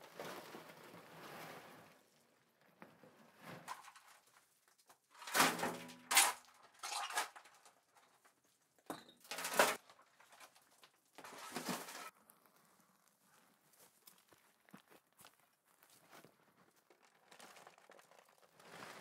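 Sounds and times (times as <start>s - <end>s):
shovel scraping rubble: 3.5s - 4.3s, 5.2s - 8.1s, 9.0s - 12.1s, 17.3s - 19.0s
rubble crashing into wheelbarrow: 3.5s - 4.5s, 5.2s - 8.2s, 8.9s - 12.1s.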